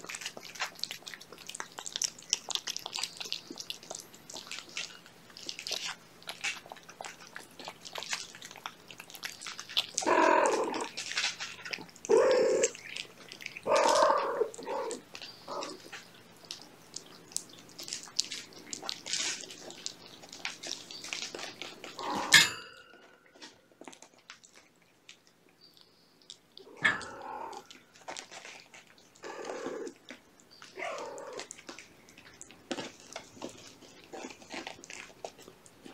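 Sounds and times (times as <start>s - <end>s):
cats chewing and lapping food: 0.0s - 35.9s
cat vocalizations: 6.4s - 16.0s, 21.7s - 22.6s, 26.6s - 31.7s.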